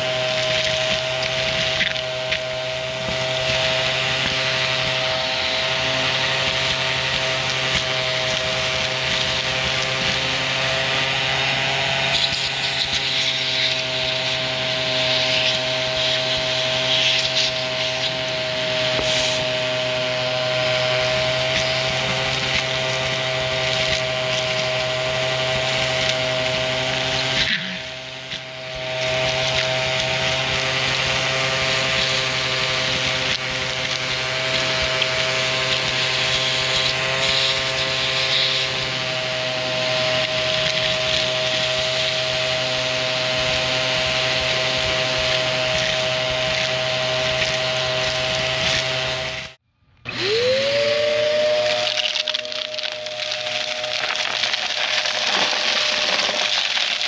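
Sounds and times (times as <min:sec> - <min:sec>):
vacuum cleaner running: 0:00.0 - 0:57.0
debris crackling: 0:51.6 - 0:57.0.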